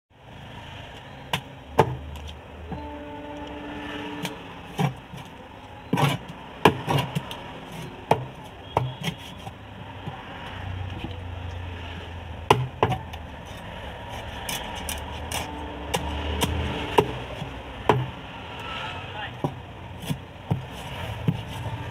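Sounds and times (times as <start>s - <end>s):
cleaver chopping on wooden block: 5.9s - 7.4s, 12.5s - 13.1s.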